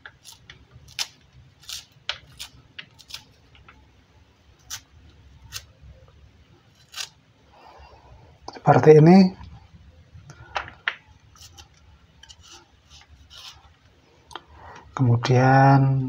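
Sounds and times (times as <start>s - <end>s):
knife crunching through plant: 0.2s - 3.3s.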